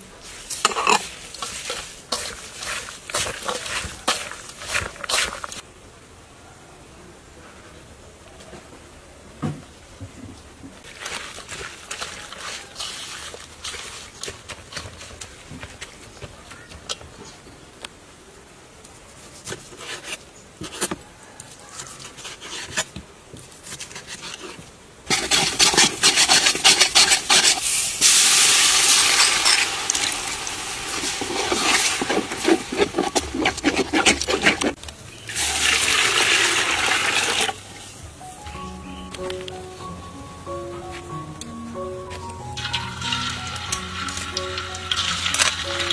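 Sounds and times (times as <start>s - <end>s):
food frying in hot oil: 25.1s - 32.9s, 35.3s - 37.6s, 42.6s - 45.9s.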